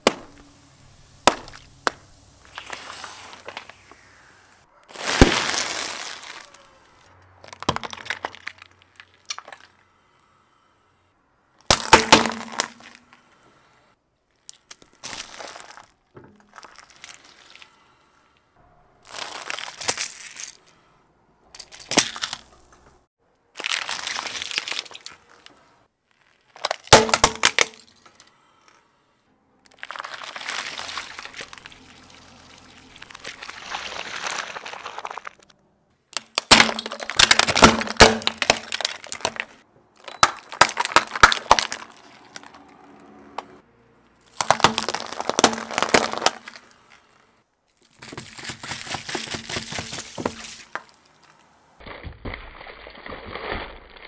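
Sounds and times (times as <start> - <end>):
juice cartons bursting: 0.0 - 4.3, 4.9 - 6.7, 11.7 - 13.1, 19.0 - 20.7, 23.6 - 27.8, 29.7 - 35.5, 36.1 - 42.5, 44.3 - 47.2, 47.8 - 54.0
plastic crunching under car tyre: 0.0 - 4.3, 4.9 - 6.8, 7.4 - 9.8, 11.6 - 13.3, 14.4 - 17.8, 19.0 - 20.8, 21.6 - 22.9, 23.5 - 27.9, 29.6 - 42.7, 44.2 - 54.0
water beads being crushed: 1.2 - 4.3, 4.9 - 6.6, 7.4 - 10.2, 11.6 - 13.2, 14.3 - 17.8, 19.0 - 20.8, 21.5 - 22.8, 23.6 - 28.8, 29.6 - 35.5, 36.1 - 42.7, 44.2 - 54.0.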